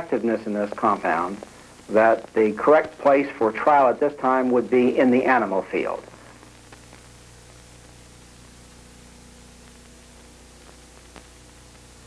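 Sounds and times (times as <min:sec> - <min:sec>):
low mains hum: 0:00.0 - 0:12.0
steady tape hiss: 0:00.0 - 0:12.0
faint clicks: 0:06.1 - 0:07.1.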